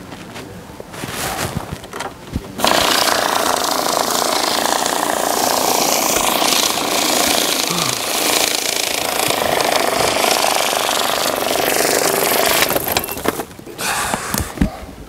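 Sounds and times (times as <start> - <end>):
bill-counting machine rattling: 2.6 - 13.4.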